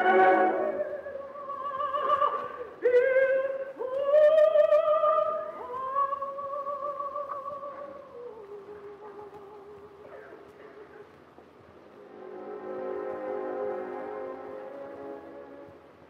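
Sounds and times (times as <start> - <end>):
operatic soprano singing: 0.0 - 10.6.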